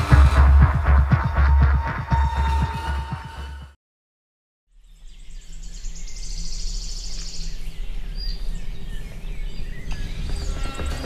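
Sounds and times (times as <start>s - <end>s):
birds chirping: 4.7s - 11.0s.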